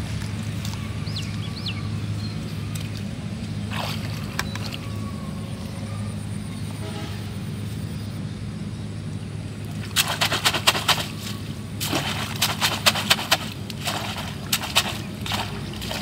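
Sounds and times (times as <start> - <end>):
low motor drone: 0.0 - 16.0
water splash: 3.7 - 4.8, 9.7 - 16.0.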